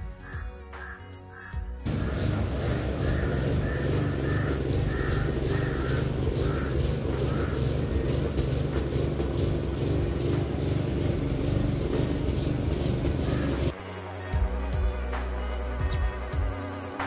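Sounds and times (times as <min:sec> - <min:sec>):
lawn mower engine running: 0:01.8 - 0:13.8.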